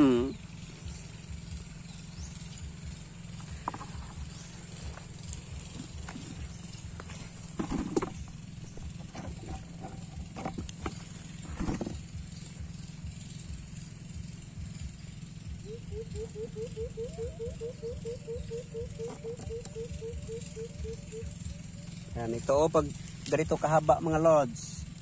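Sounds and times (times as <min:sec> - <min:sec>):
leaves rustling: 0:00.5 - 0:12.6
animal chirping: 0:15.6 - 0:22.2.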